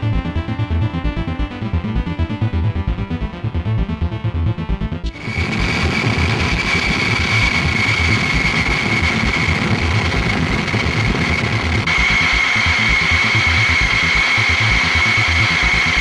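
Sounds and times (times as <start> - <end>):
high steady whine: 5.0 - 16.0
rush of air from fan: 5.2 - 16.0.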